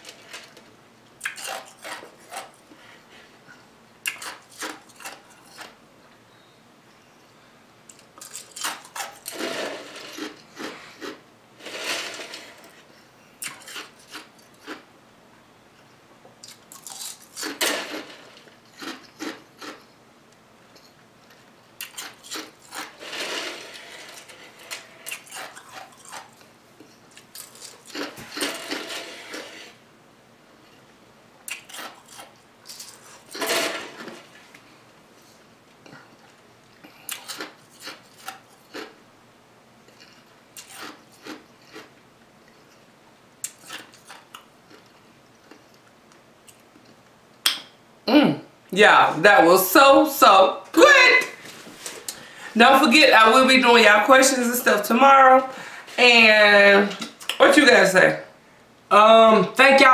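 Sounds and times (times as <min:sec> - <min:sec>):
chewing: 0:01.2 - 0:02.6, 0:04.0 - 0:05.8, 0:13.4 - 0:14.8, 0:16.4 - 0:17.6, 0:18.6 - 0:19.9, 0:21.2 - 0:23.0, 0:25.1 - 0:28.5, 0:31.5 - 0:33.3, 0:35.8 - 0:39.0, 0:39.9 - 0:47.1.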